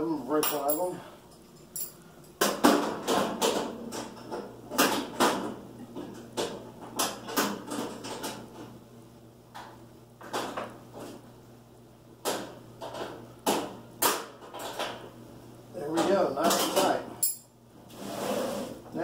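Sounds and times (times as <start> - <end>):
metal clinks and clanks: 0.4 - 2.4, 17.2 - 17.5.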